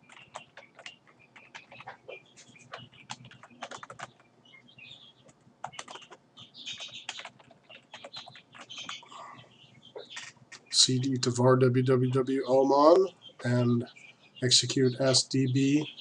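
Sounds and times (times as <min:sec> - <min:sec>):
typing on computer keyboard: 0:00.0 - 0:02.0, 0:02.7 - 0:04.2, 0:05.6 - 0:09.0.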